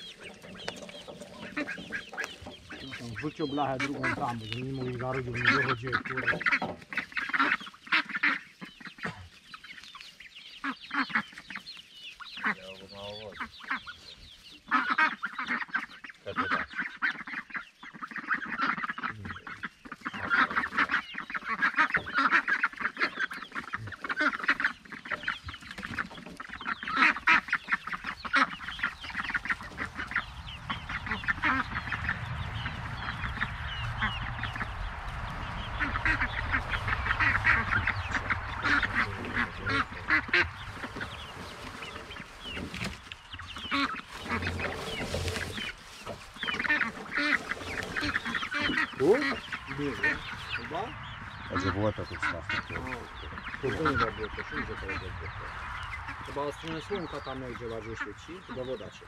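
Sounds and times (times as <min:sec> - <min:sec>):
ducks quacking: 0:00.0 - 0:59.0
steady low rumble: 0:26.5 - 0:58.0.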